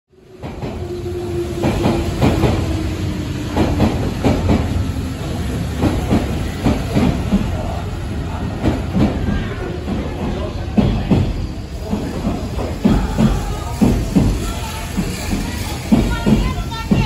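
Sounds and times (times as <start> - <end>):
train wheels rumbling on rail: 0.1 - 17.0
wheels clacking over rail joints: 8.6 - 17.0.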